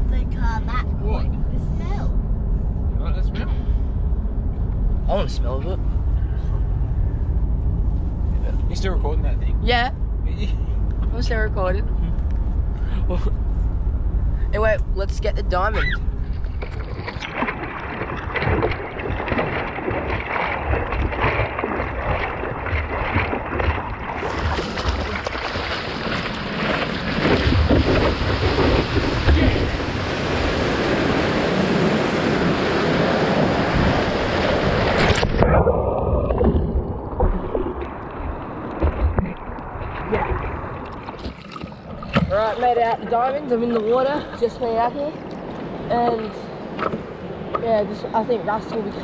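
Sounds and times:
wind buffeting microphone: 0:00.0 - 0:49.0
water rushing over surfboard: 0:16.2 - 0:44.0.

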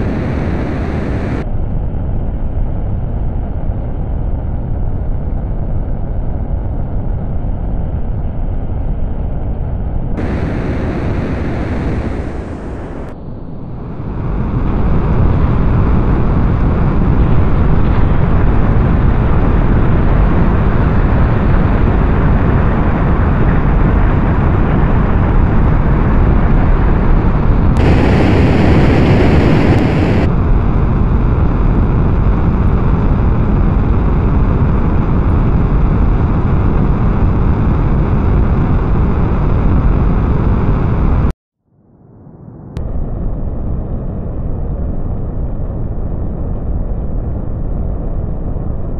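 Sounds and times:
rocket engine rumble: 0:00.0 - 0:01.7, 0:10.0 - 0:41.3.

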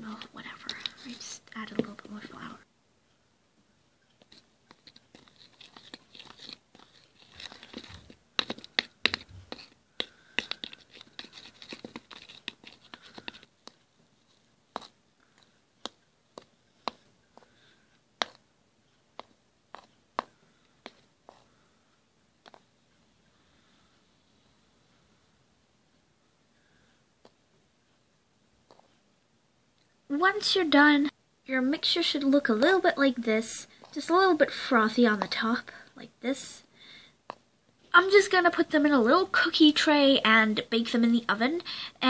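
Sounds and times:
knife scraping plastic bowl: 0:04.3 - 0:13.8.

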